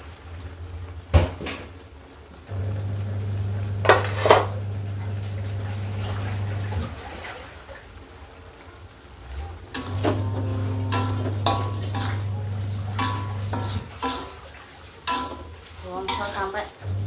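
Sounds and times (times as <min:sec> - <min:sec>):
metal pots clanking: 0:03.8 - 0:04.6, 0:09.7 - 0:16.6.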